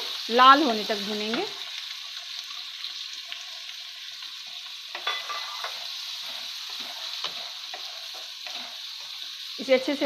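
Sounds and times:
onions sizzling in hot oil: 0.0s - 10.0s
spatula scraping and knocking pan: 4.9s - 9.3s.

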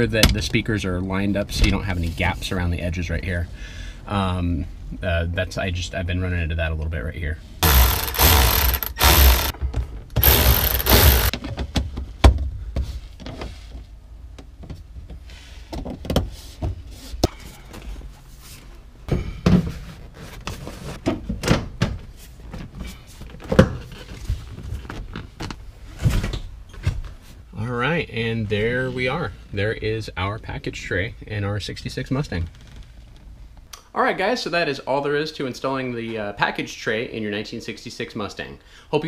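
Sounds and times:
cordless ratchet running: 7.6s - 9.5s, 10.2s - 11.3s.

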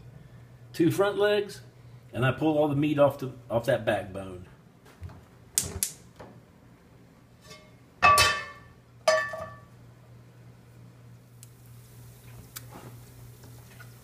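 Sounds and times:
ceramic dish clinking on skillet: 7.5s - 9.7s.

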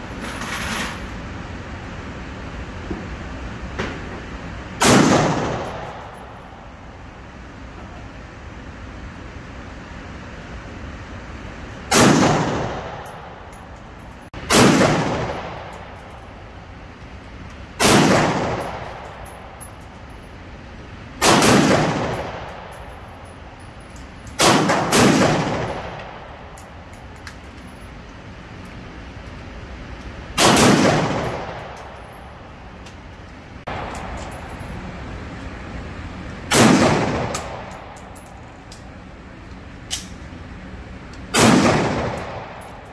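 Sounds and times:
rifle shots echoing indoors: 4.8s - 6.6s, 14.3s - 16.3s, 17.8s - 19.9s, 21.2s - 23.1s, 24.4s - 26.7s, 30.4s - 32.1s, 36.5s - 38.0s, 41.3s - 42.9s.

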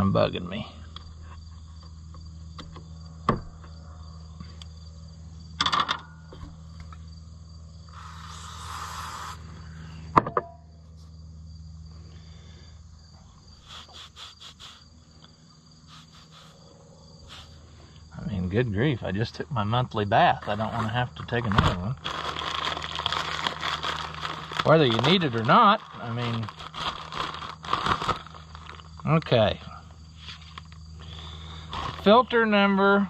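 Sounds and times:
insects chorus: 0.0s - 33.0s
low hum: 0.6s - 29.0s
brief hiss: 7.9s - 9.4s.

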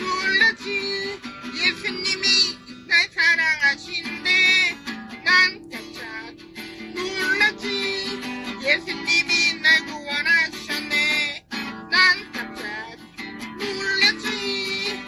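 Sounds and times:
person singing: 0.0s - 15.0s
strummed acoustic guitar: 0.0s - 15.0s.

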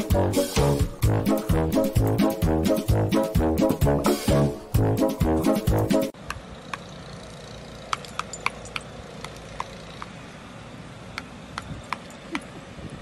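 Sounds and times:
brass music phrase: 0.0s - 6.1s
thin metallic clinks: 7.9s - 9.5s.

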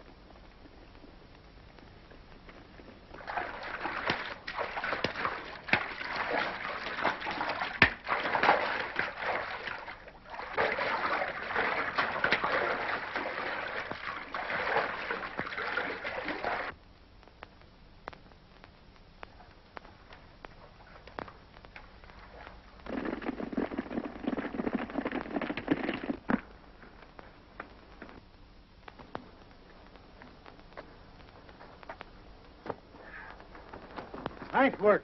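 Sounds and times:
heavy splashing in water: 3.2s - 16.7s.

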